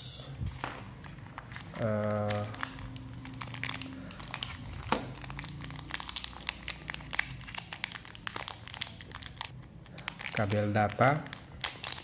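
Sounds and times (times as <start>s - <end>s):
cable crinkling and clicking in hands: 0.6s - 12.0s.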